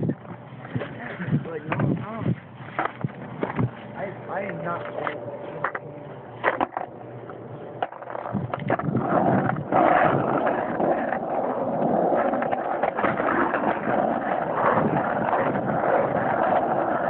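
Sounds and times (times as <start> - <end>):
skateboard wheels rolling on asphalt: 0.0 - 17.0.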